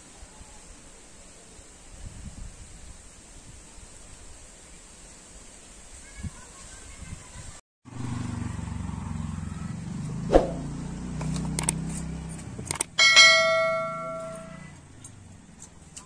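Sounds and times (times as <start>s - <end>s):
low engine hum: 7.9s - 16.0s
small clinks: 11.3s - 16.0s
metal plate ringing: 13.0s - 14.7s.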